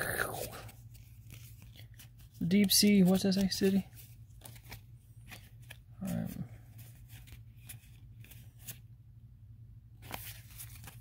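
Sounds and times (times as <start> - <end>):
cards rustling: 0.0 - 8.9, 10.0 - 11.0
cards clicking and slapping: 0.6 - 3.8.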